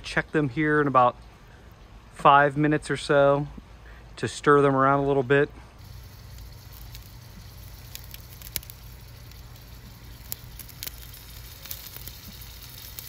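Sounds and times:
low rumble of flames: 5.7 - 13.0
vegetables sizzling in skillet: 5.8 - 13.0
wood fire crackling and popping: 5.8 - 13.0.

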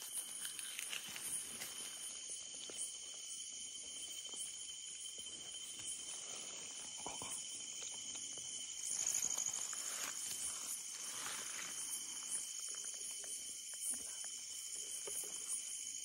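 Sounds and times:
leaves and twigs rustling: 0.0 - 4.6, 7.6 - 15.8
night insects chorus: 0.0 - 16.0.

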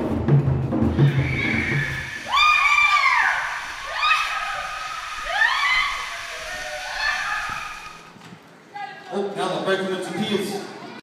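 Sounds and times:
people whooping and screaming: 0.9 - 8.2.

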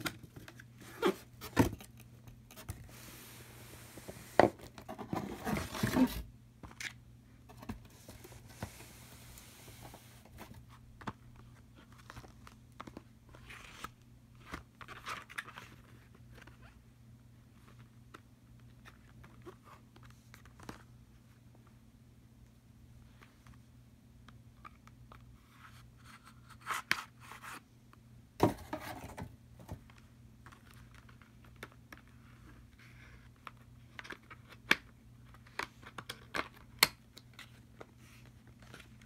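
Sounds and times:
cardboard box scraping and knocking: 3.9 - 6.2.

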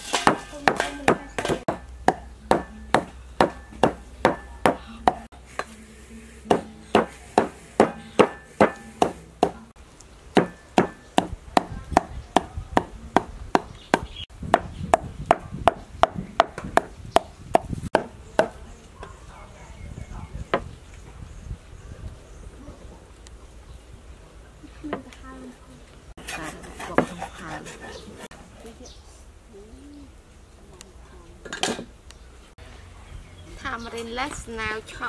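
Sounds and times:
cleaver chopping on wooden block: 0.2 - 5.3, 6.5 - 9.6, 10.4 - 18.6.

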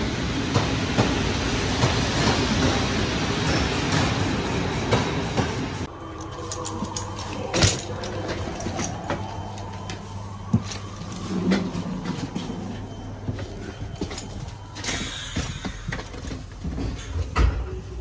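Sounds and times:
footsteps on steel floor: 6.7 - 17.7.

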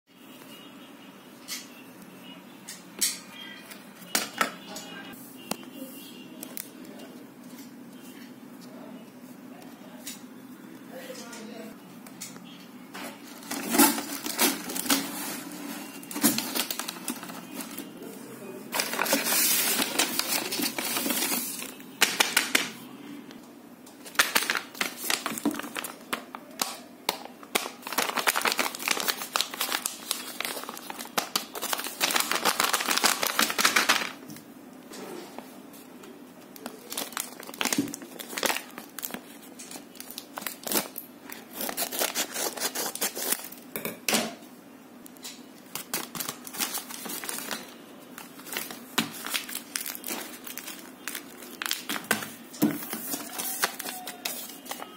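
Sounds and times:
paper crinkling and rustling: 13.1 - 18.1, 18.7 - 22.7, 24.0 - 34.4, 35.3 - 43.6, 45.6 - 54.9.

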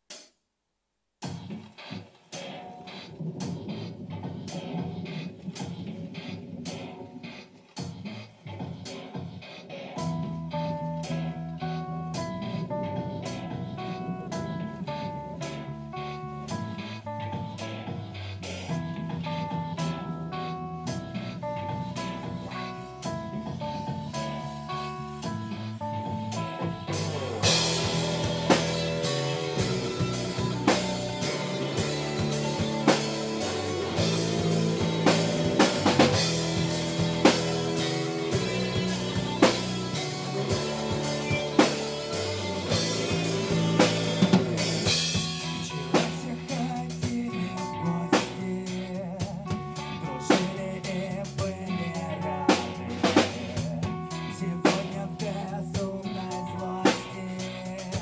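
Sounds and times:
drum kit beat: 0.0 - 0.4, 1.2 - 58.0
bass guitar: 1.2 - 58.0
electric guitars: 2.4 - 58.0
cymbals: 20.9 - 49.0.

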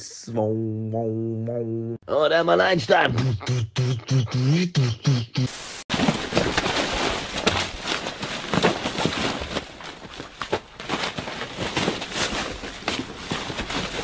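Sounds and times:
paper rustling and crumpling: 5.9 - 14.0.

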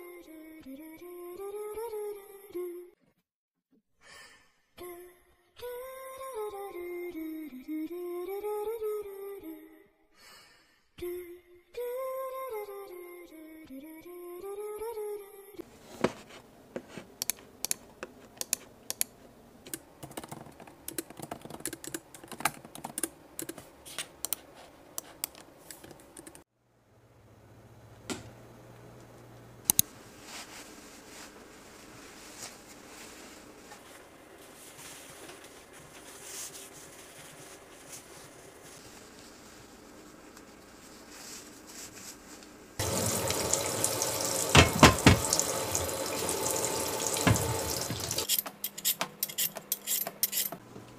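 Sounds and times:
laptop keyboard typing: 19.7 - 23.6
soft rustling: 30.1 - 42.6.

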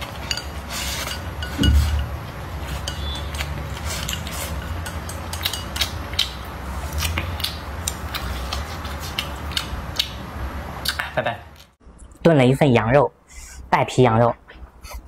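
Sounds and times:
chopsticks scraping ceramic bowl: 0.0 - 5.9
low thump: 1.6 - 2.1.

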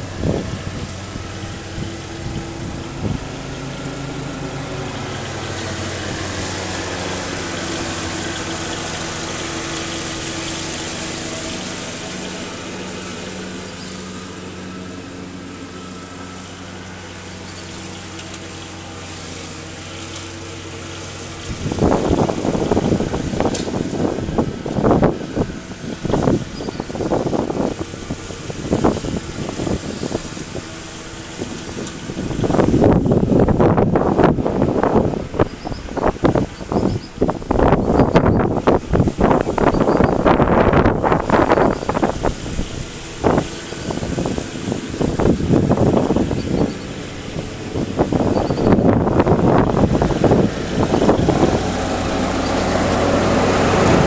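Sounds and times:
lawn mower engine humming: 0.0 - 54.0.

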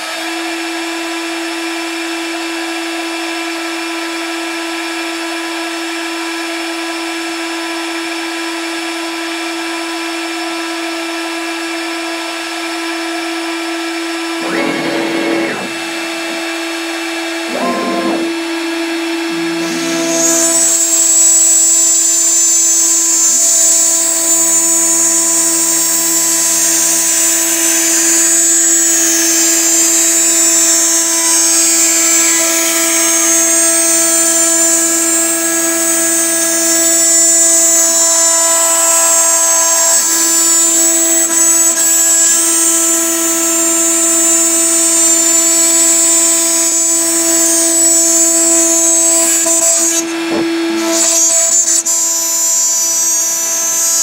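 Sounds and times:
router spindle whining: 0.0 - 54.0
bit cutting through laminate sheet: 13.6 - 54.0.

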